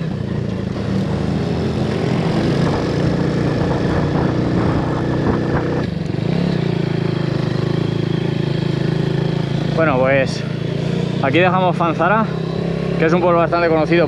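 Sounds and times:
motorcycle engine running: 0:00.0 - 0:14.0
wind noise: 0:02.0 - 0:06.0.

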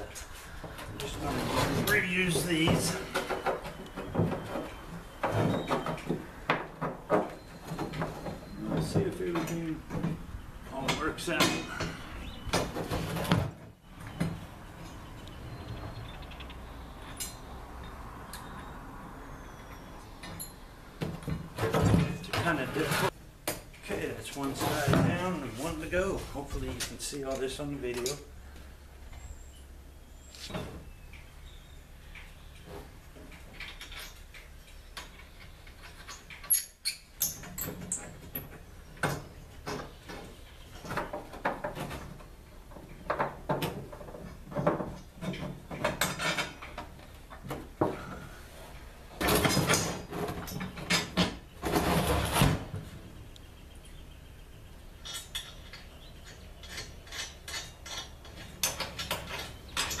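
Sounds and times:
wrench and bolts clinking: 0:55.0 - 1:00.0.

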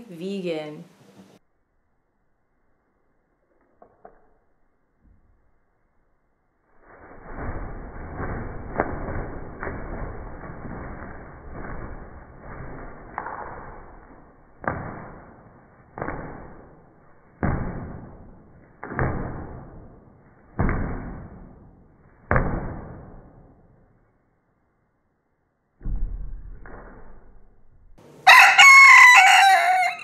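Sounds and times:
rooster flapping wings: 0:06.7 - 0:16.9.

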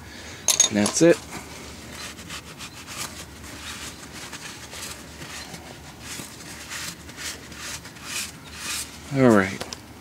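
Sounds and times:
towel rubbing and rustling: 0:01.2 - 0:09.4.

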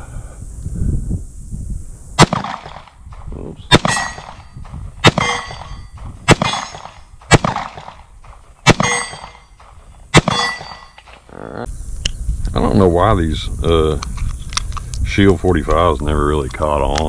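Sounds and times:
pistol shots: 0:02.2 - 0:03.0, 0:03.7 - 0:11.0
steel target clanging: 0:03.7 - 0:07.9, 0:08.6 - 0:11.1.

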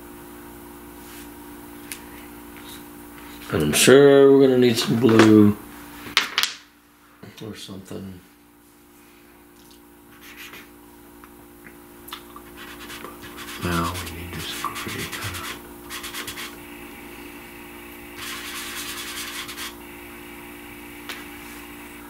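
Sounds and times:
short low hum: 0:11.7 - 0:22.0
fingers rubbing pastel on paper: 0:12.6 - 0:16.6, 0:18.2 - 0:19.8.

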